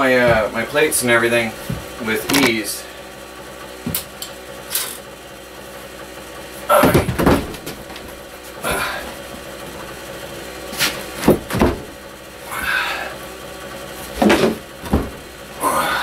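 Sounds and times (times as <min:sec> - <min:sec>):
wooden cabinet knocking against wood: 0:06.8 - 0:07.8, 0:11.2 - 0:11.9, 0:14.2 - 0:15.2.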